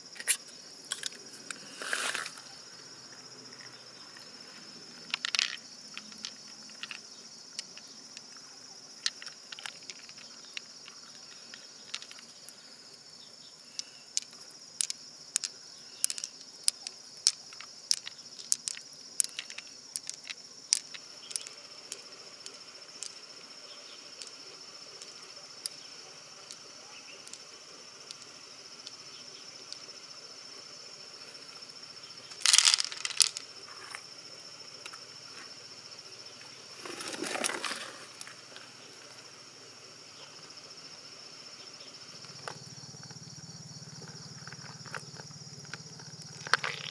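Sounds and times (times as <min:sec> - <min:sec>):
high insect drone: 0:00.0 - 0:46.9
pearls clicking together: 0:05.0 - 0:08.4, 0:09.0 - 0:12.6, 0:13.6 - 0:30.0, 0:32.3 - 0:33.6, 0:44.0 - 0:46.9.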